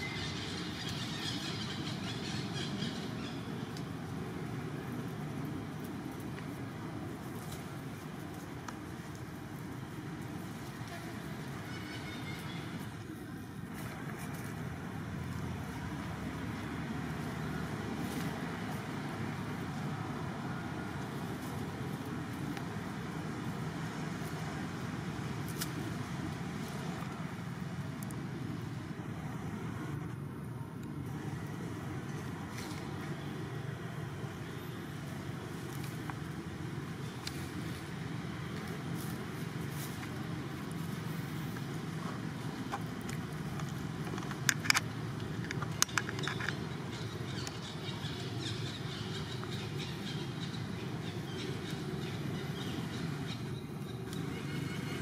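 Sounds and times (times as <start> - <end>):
low outdoor rumble: 0.0 - 55.0
monkeys scuffling in dry leaves: 3.7 - 27.7, 35.0 - 44.0.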